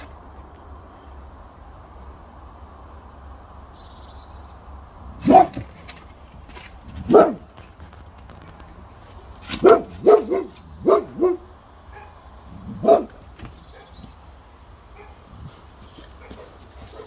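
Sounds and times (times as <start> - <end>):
dog barking: 5.2 - 5.7, 7.0 - 7.5, 9.5 - 14.1, 15.0 - 15.2.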